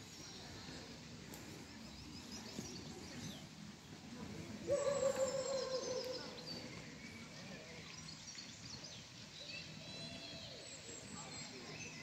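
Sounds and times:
small birds chirping: 0.0s - 4.0s
faint distant voices: 0.0s - 12.0s.

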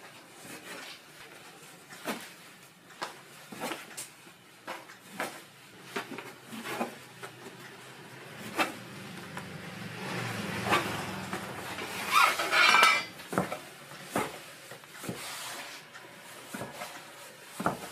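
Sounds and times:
knife chopping on cutting board: 17.6s - 17.9s.

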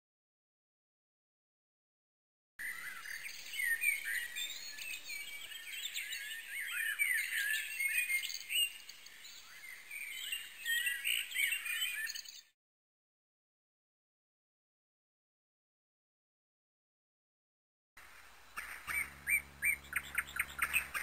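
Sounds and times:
small birds chirping: 2.6s - 12.6s, 18.0s - 21.0s.

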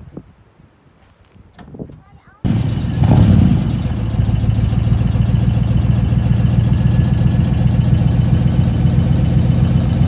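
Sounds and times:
car engine idling exhaust: 2.5s - 10.0s.

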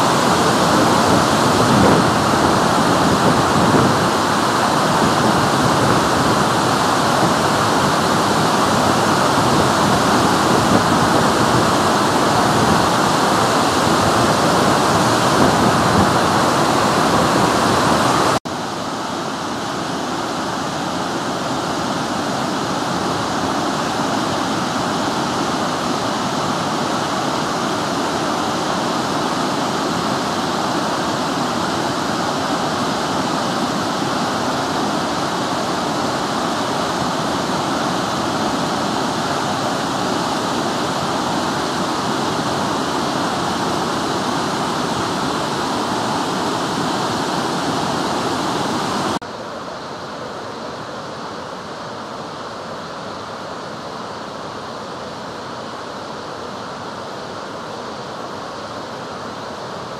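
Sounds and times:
waterfall roaring: 0.0s - 59.9s.

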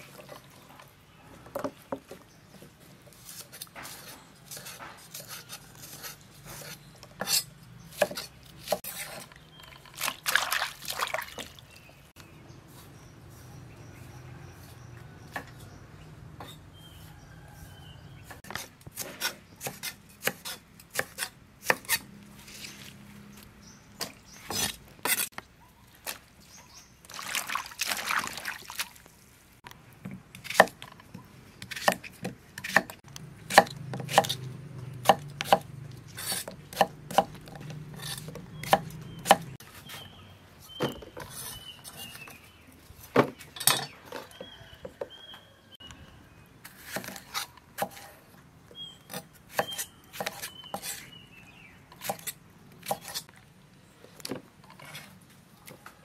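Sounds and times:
water splashing: 9.3s - 12.0s, 27.0s - 29.3s.

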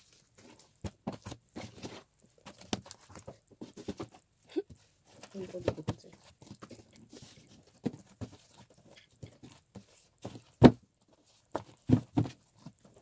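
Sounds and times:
objects tapping and knocking on desk: 11.5s - 13.0s.

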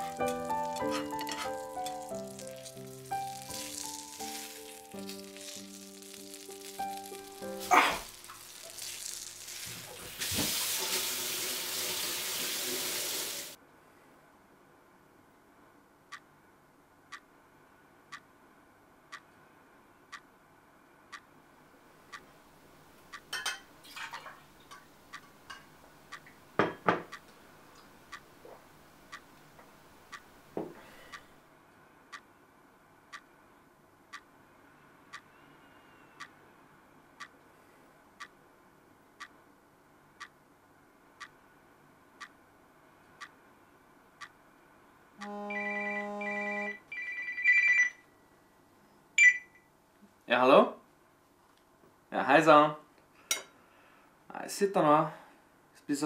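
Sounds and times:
wall clock ticking: 23.0s - 23.3s, 25.0s - 26.5s, 27.1s - 27.3s, 28.0s - 28.5s, 29.1s - 29.4s, 30.1s - 30.3s, 36.2s - 36.4s, 37.2s - 37.4s, 39.2s - 39.4s, 41.2s - 41.4s, 43.2s - 43.4s
mobile phone ringtone: 45.2s - 48.1s.

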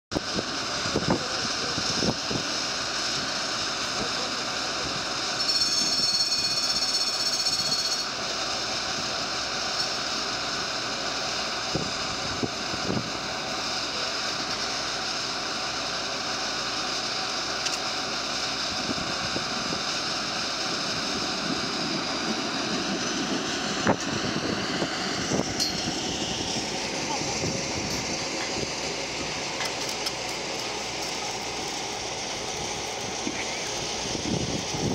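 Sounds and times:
wind rush on microphone: 0.2s - 2.5s, 11.7s - 13.2s, 18.7s - 29.4s, 34.0s - 34.9s
high multi-tone whine: 0.2s - 34.9s
tram pulling away: 0.2s - 34.9s
faint voices: 26.5s - 30.1s.

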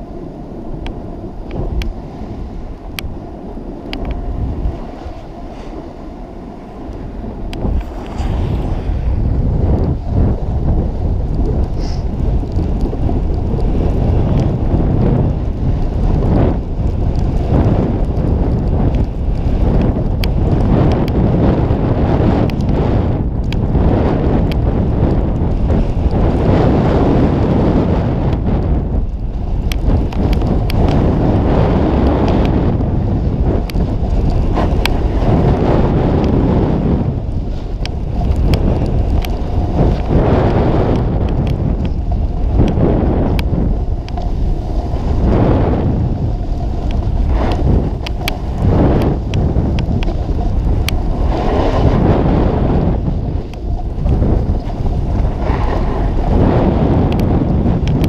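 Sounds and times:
wind buffeting microphone: 0.0s - 58.0s
small sharp ticks: 0.8s - 2.0s, 2.7s - 3.2s, 3.8s - 5.9s, 6.8s - 9.0s, 11.2s - 22.8s, 23.4s - 23.8s, 28.2s - 58.0s
snowboard hissing through snow: 7.7s - 9.3s, 11.8s - 12.2s.

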